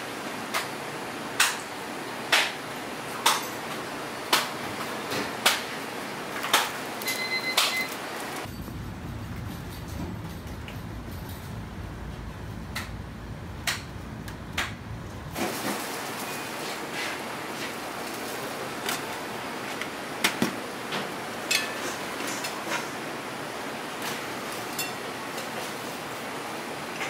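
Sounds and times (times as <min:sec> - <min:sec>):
low kitchen rumble: 0:08.2 - 0:27.0.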